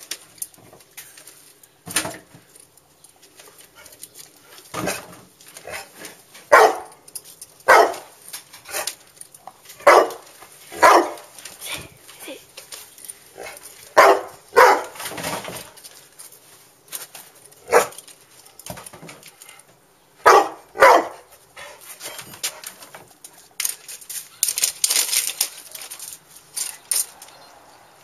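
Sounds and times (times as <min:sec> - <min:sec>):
dog barking: 0:06.5 - 0:07.0, 0:07.6 - 0:08.1, 0:09.8 - 0:10.2, 0:10.8 - 0:11.3, 0:13.4 - 0:15.0, 0:17.7 - 0:18.0, 0:20.2 - 0:21.3.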